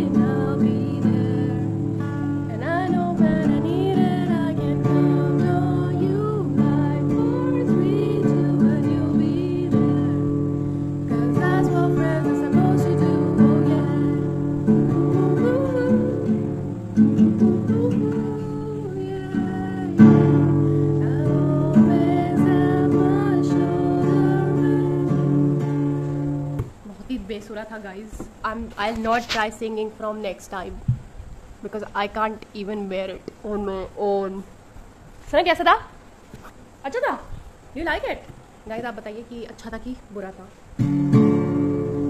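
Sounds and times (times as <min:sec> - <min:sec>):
woman singing: 0:00.0 - 0:25.7
guitar strummed and plucked: 0:00.0 - 0:26.8, 0:40.8 - 0:42.0.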